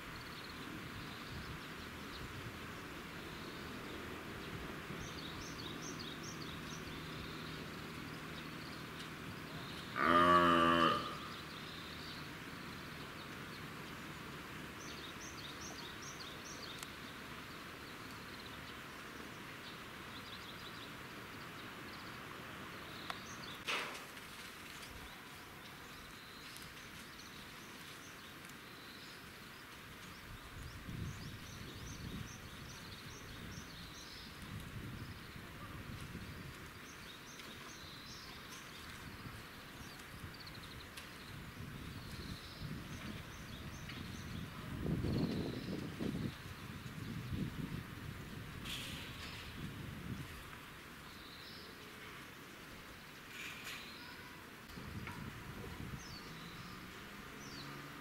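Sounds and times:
small birds chirping: 0.0s - 23.7s, 24.8s - 47.8s, 48.6s - 58.0s.

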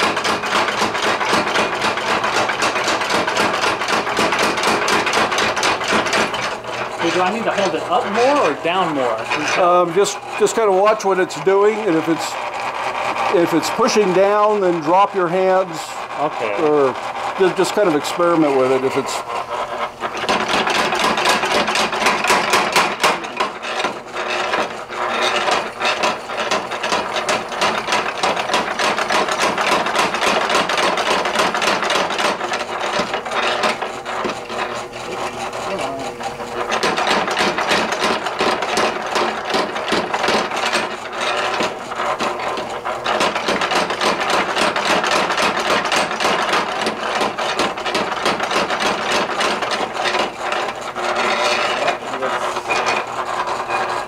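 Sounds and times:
power hammer striking hot steel: 20.1s - 24.6s.

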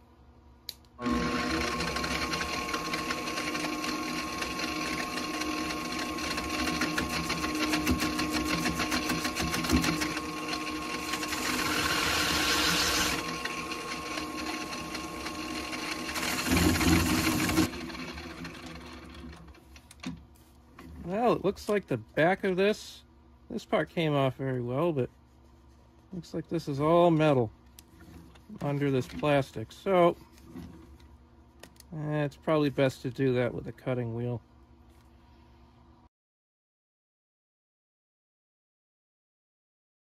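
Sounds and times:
lathe motor whining: 1.0s - 19.6s.

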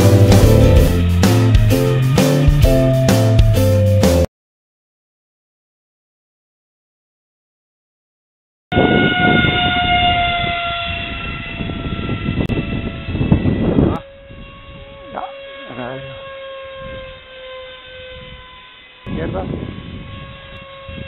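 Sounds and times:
model jet fan whine: 0.0s - 2.6s, 8.8s - 21.0s
low rumble: 0.0s - 3.6s.

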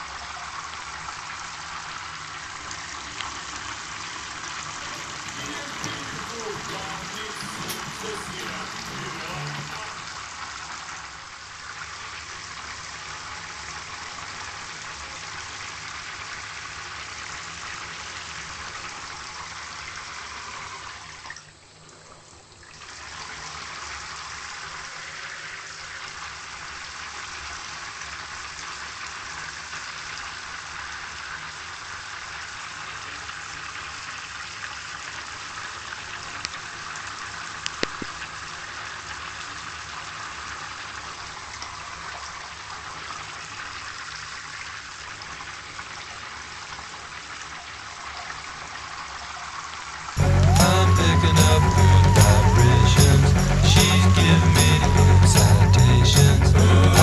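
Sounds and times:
running water rushing: 0.0s - 21.3s.

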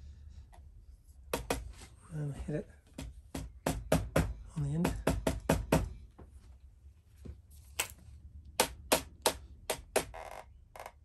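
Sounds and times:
rubber mallet knocking: 1.3s - 1.7s, 2.9s - 6.0s.

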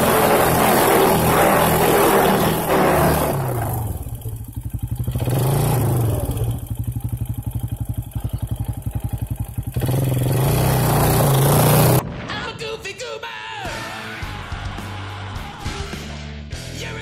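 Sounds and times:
atv engine idling and revving: 0.0s - 12.0s.

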